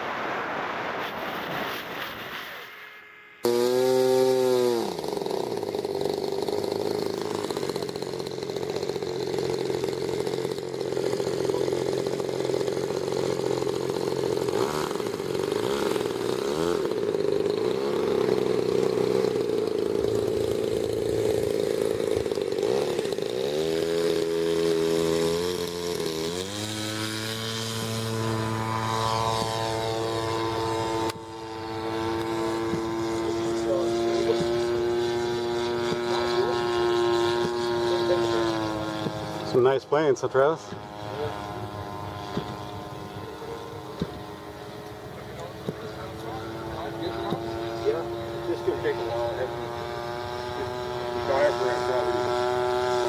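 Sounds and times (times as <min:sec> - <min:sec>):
wind rush: 0:00.0 - 0:03.0
model airplane engine: 0:00.0 - 0:53.0.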